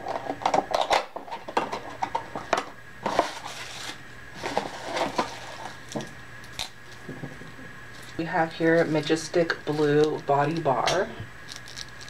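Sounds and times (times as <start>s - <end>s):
plastic wrapper crinkling: 7.9s - 12.0s.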